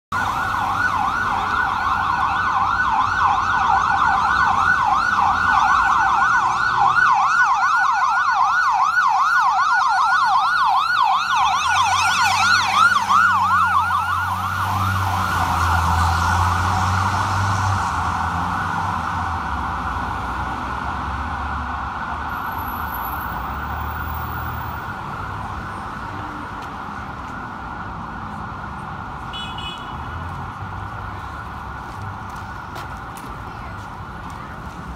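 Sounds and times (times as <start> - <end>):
fire engine siren yelping: 0.1 - 26.2.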